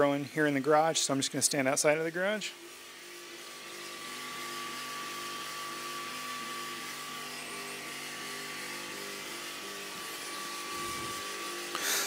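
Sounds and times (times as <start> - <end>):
cooling fan and pump hiss: 0.0 - 12.0
thin steady whine: 0.0 - 12.0
stepper motors whining: 2.5 - 12.0.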